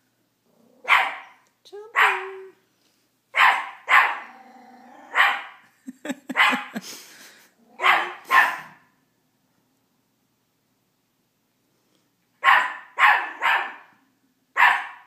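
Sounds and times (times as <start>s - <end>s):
puppy growling: 0.4s - 0.9s, 4.2s - 5.2s
puppy barking: 0.8s - 1.4s, 2.0s - 2.4s, 3.4s - 4.3s, 5.1s - 5.6s, 6.3s - 6.8s, 7.8s - 8.9s, 12.4s - 14.0s, 14.6s - 15.0s.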